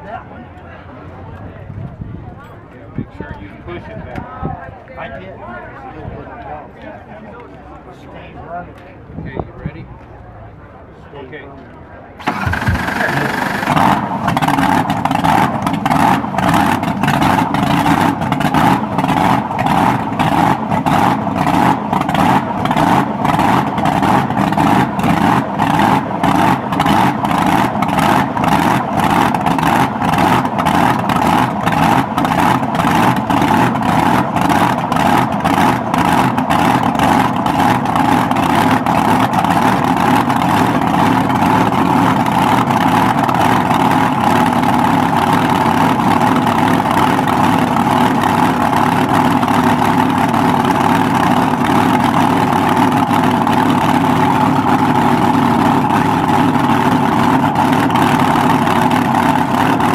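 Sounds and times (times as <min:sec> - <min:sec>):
loud car engine lumpy idle: 0:12.2 - 0:59.9.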